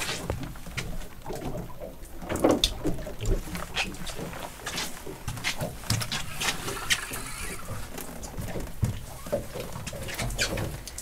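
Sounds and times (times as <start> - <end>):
wind and sea hiss: 4.8 - 8.1.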